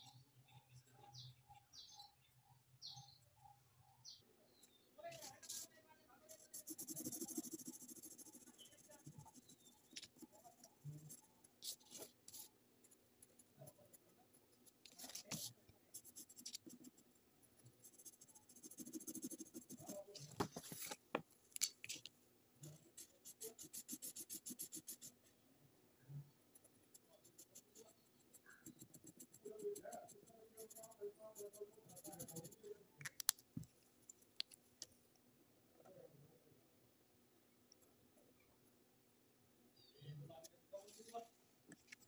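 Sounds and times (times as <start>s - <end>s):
pen scratching on paper: 5.2s - 5.7s, 6.3s - 20.2s, 22.8s - 25.2s, 26.5s - 32.6s.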